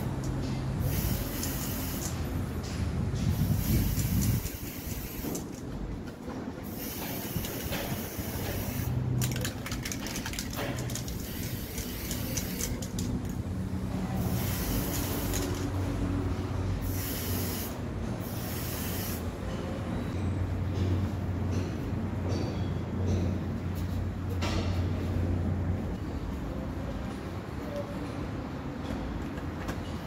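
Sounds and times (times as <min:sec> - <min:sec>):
aerosol spray can hissing: 0:00.8 - 0:02.2, 0:03.5 - 0:05.4, 0:06.7 - 0:09.0, 0:11.1 - 0:12.8, 0:14.3 - 0:15.6, 0:16.8 - 0:19.2.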